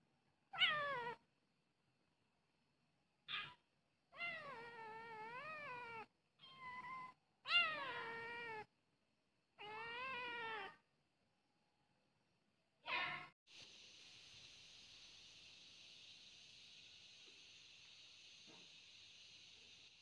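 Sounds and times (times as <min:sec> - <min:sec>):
kitten meowing: 0:03.3 - 0:03.6, 0:04.2 - 0:08.7, 0:09.6 - 0:10.8.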